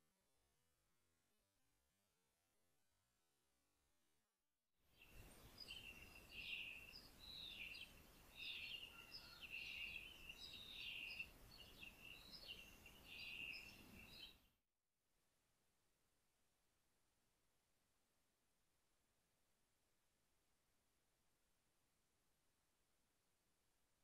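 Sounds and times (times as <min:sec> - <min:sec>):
faint outdoor hiss: 0:04.9 - 0:14.5
small birds chirping: 0:05.0 - 0:14.5.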